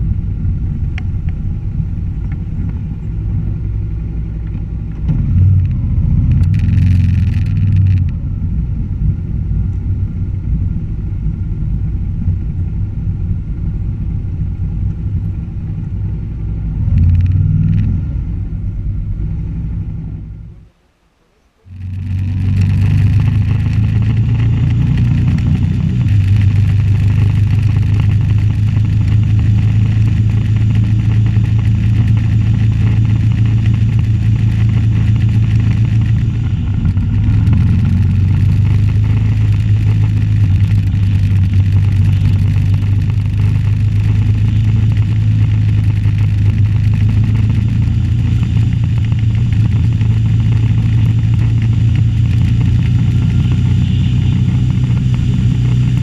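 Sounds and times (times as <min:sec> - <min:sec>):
motorcycle engine running: 0:00.0 - 0:20.6, 0:21.6 - 0:56.0
road noise: 0:00.0 - 0:56.0
rushing wind: 0:21.7 - 0:56.0.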